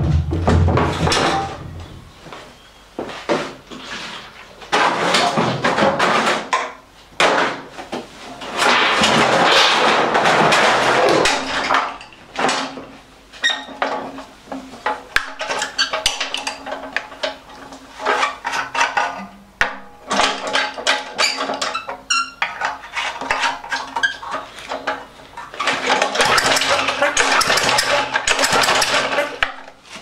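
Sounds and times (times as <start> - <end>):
rough scraping on concrete: 3.2 - 4.4
lawnmower clattering on concrete: 20.1 - 29.8.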